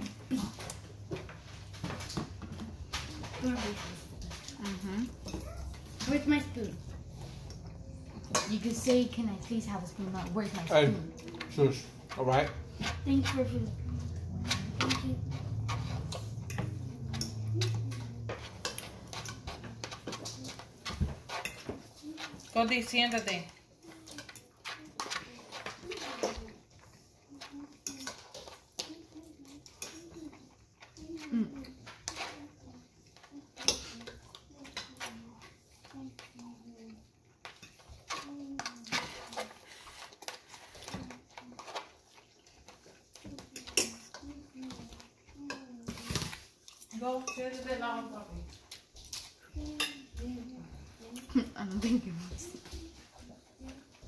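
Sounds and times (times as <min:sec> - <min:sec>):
chewing crunchy food: 0:09.8 - 0:22.6, 0:23.5 - 0:47.0, 0:48.4 - 0:51.3
fork scraping ceramic plate: 0:11.5 - 0:22.5.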